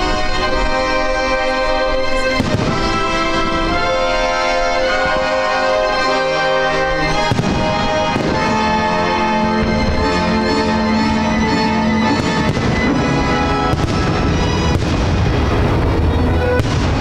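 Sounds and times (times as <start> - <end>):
music with long held chords: 0.0 - 17.0
fireworks bangs: 2.1 - 6.0, 7.0 - 10.5, 11.4 - 17.0.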